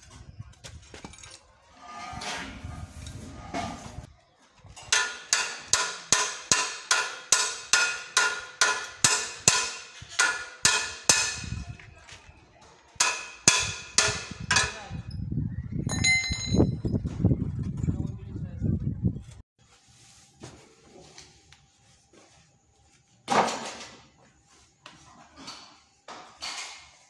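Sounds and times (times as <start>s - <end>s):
hammer striking metal: 4.9s - 11.6s, 13.0s - 14.9s
ringing metal clink: 15.9s - 16.7s.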